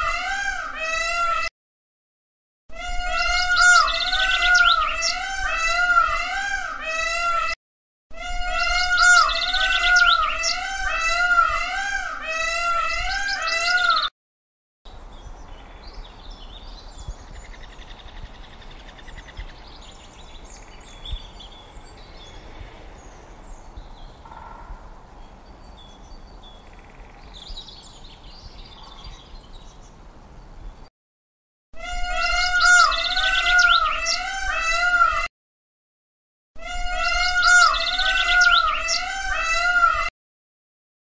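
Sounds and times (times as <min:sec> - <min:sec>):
peacock calling loudly: 0:00.0 - 0:01.5, 0:02.8 - 0:07.6, 0:08.2 - 0:14.1, 0:31.8 - 0:35.3, 0:36.6 - 0:40.1
quiet outdoor ambience: 0:14.9 - 0:30.9.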